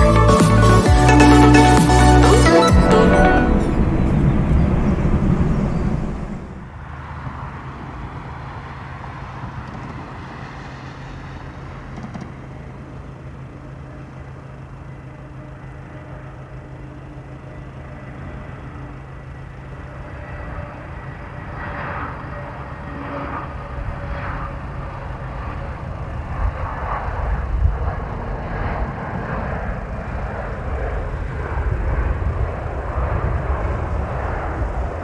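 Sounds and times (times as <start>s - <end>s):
low hum: 0.0s - 7.2s
jet engine whine: 0.0s - 35.0s.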